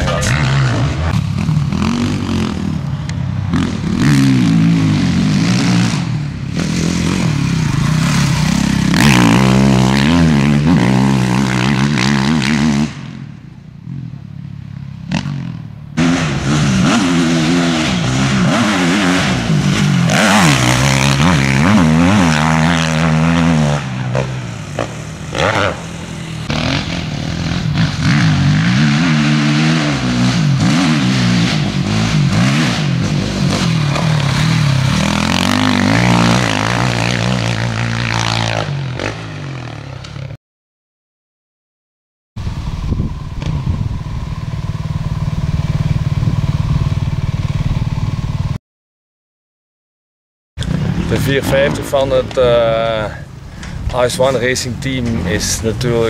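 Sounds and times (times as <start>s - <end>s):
motocross bike engine revving: 0.0s - 13.3s, 15.0s - 40.4s.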